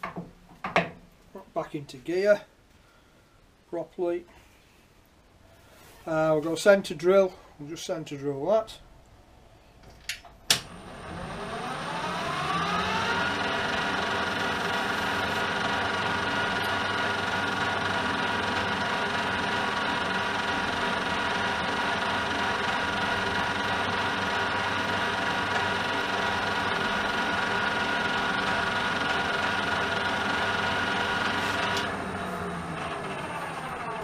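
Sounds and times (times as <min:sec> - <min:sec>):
metal lathe whining: 0:10.6 - 0:34.0.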